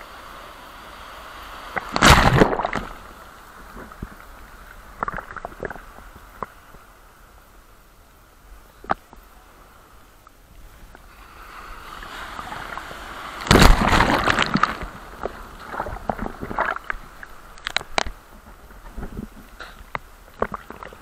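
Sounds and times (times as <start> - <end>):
ocean wave crashing: 11.1 - 16.8
water washing out with hiss: 11.1 - 17.2.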